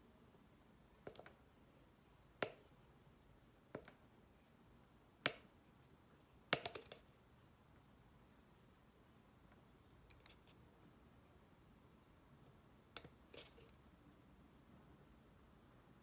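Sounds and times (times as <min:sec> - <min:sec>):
plastic tub clicking: 0:06.5 - 0:07.0.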